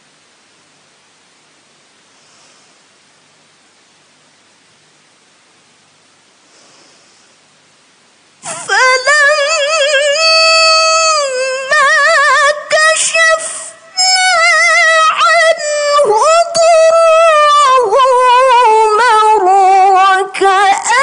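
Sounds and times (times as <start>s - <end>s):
woman chanting melodically: 8.5s - 21.0s.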